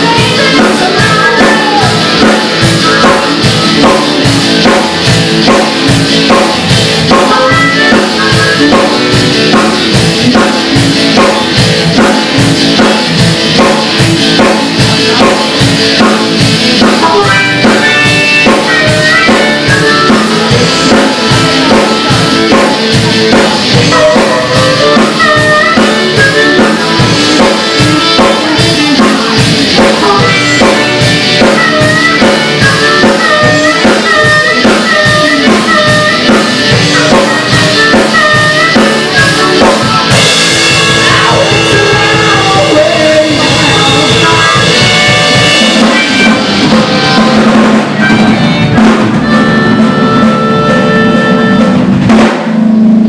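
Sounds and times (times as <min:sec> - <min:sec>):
harmonica solo: 0:00.0 - 0:11.0, 0:17.0 - 0:52.0
drum kit beat: 0:00.0 - 0:53.0.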